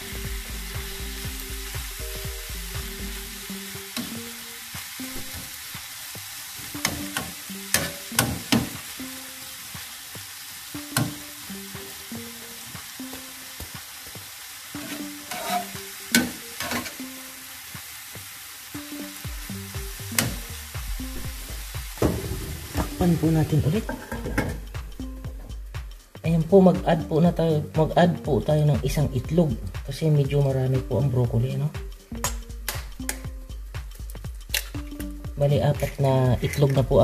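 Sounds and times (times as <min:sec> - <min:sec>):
vegetables sizzling in a pan: 0:00.0 - 0:25.7
metal utensil scraping pan: 0:06.8 - 0:08.8, 0:14.8 - 0:17.0, 0:23.5 - 0:24.6, 0:35.8 - 0:37.0.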